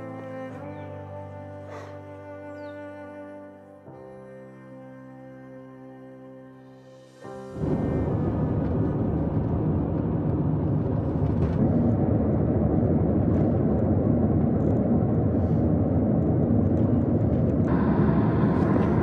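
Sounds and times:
low rumble of moving vehicle: 0:07.4 - 0:19.0.

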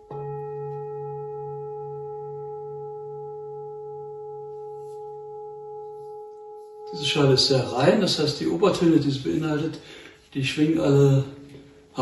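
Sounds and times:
singing bowl ringing: 0:00.0 - 0:08.0.

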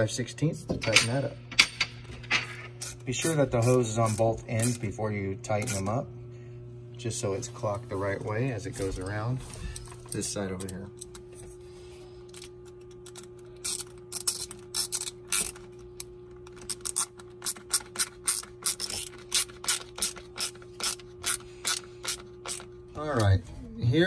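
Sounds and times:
ratchet clicking: 0:12.4 - 0:22.7.

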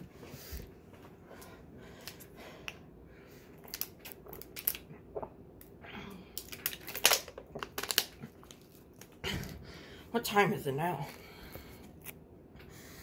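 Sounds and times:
plastic bottle crackling: 0:06.4 - 0:08.7.

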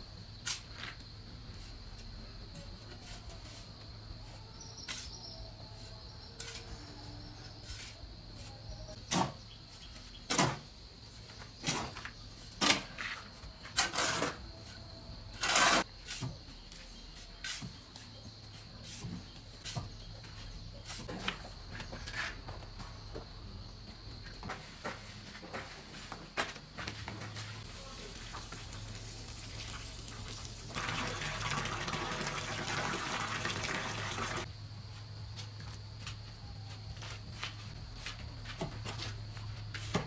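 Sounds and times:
shovel scraping sand and cement: 0:12.6 - 0:14.5, 0:15.3 - 0:16.3.

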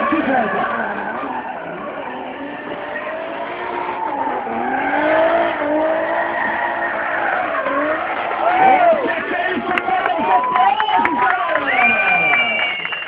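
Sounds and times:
car engine revving: 0:00.0 - 0:13.0
tyre screech: 0:00.1 - 0:09.1.

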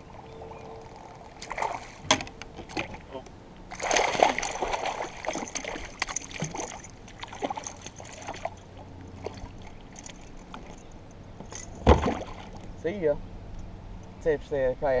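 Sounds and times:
lapping water: 0:02.8 - 0:10.8
fish splashing in water: 0:03.7 - 0:10.7.

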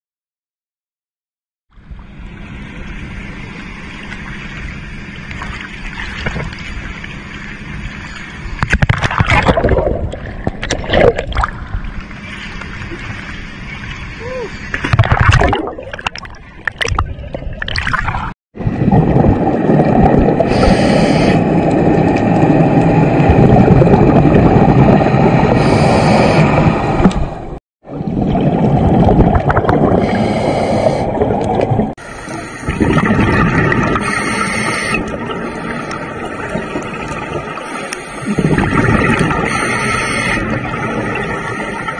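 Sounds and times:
water sloshing and splashing: 0:01.8 - 0:20.8, 0:27.8 - 0:39.8
scuba bubbles rushing underwater: 0:03.9 - 0:13.2, 0:14.9 - 0:41.9.

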